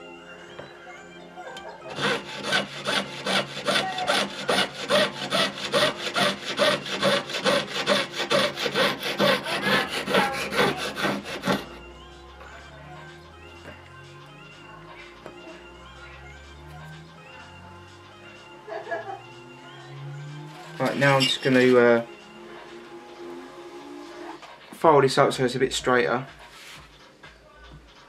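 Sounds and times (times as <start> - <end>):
saw cutting metal: 1.9 - 11.8, 19.9 - 24.4.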